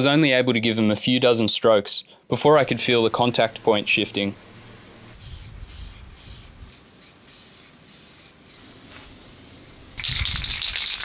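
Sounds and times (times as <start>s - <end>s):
spray paint can hissing: 5.2s - 11.0s.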